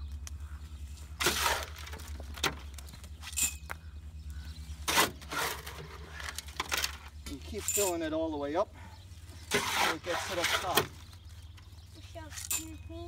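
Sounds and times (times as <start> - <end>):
trowel scraping wet cement: 1.2 - 2.0, 4.9 - 6.0, 9.5 - 10.9.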